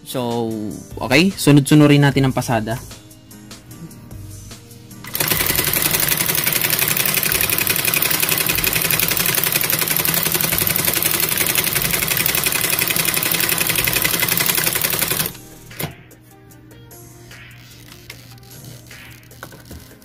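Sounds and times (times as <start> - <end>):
sewing machine clatter: 5.1 - 15.4.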